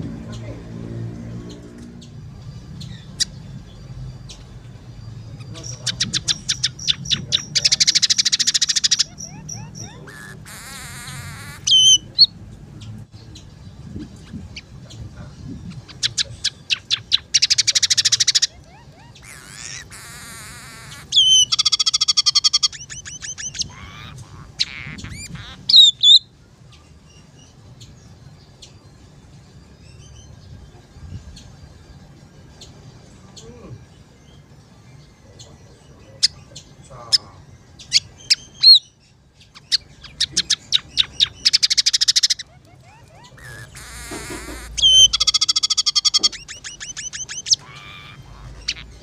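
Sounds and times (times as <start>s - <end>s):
bird whistled notes: 5.2s - 12.2s, 40.2s - 49.0s
bird singing clicks and trill: 39.5s - 49.0s.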